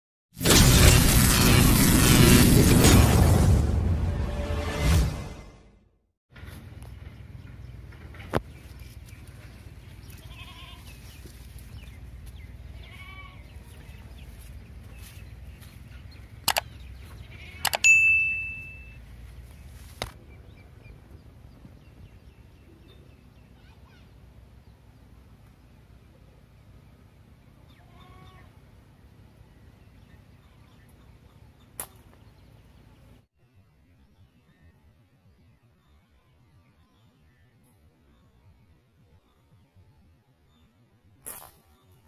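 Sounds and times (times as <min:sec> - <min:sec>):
slingshot snaps: 0:31.8 - 0:32.2.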